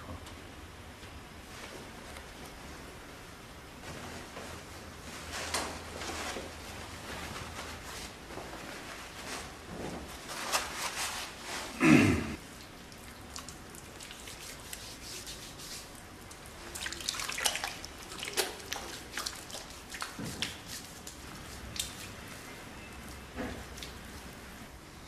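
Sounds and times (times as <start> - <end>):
wet clicks and drips: 12.6 - 14.4, 16.2 - 22.2, 23.0 - 24.0.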